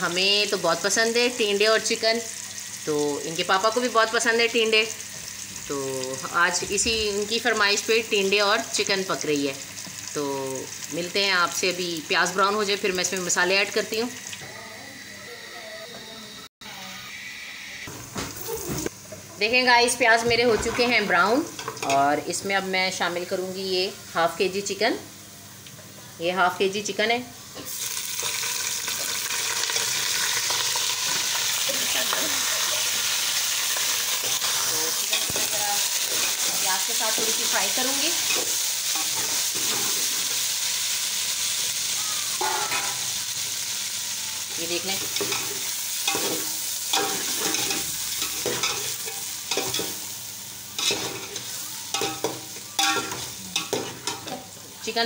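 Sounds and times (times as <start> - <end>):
chicken sizzling in hot oil: 0.0 - 15.5, 26.7 - 55.0.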